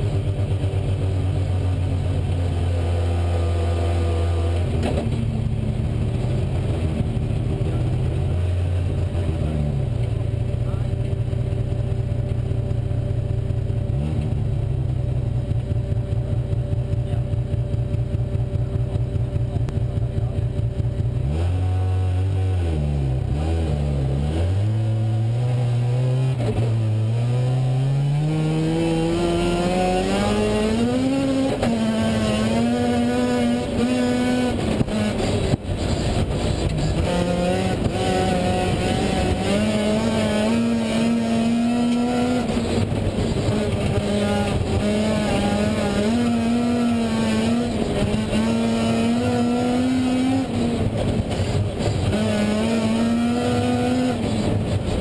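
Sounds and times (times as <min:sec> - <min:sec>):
rally car engine revving: 0:00.0 - 0:55.0.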